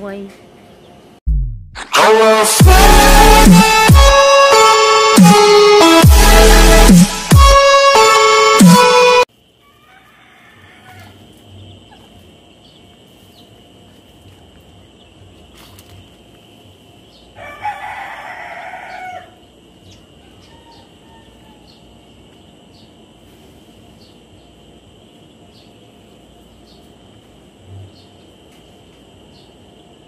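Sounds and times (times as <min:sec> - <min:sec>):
insect drone: 0:09.3 - 0:30.0
rooster crowing: 0:09.6 - 0:11.4, 0:17.3 - 0:22.0.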